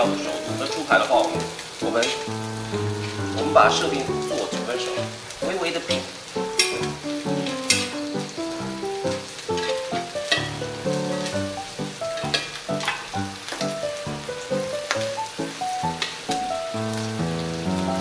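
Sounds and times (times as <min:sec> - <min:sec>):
background music melody: 0:00.0 - 0:18.0
peppers sizzling in a frying pan: 0:00.0 - 0:18.0.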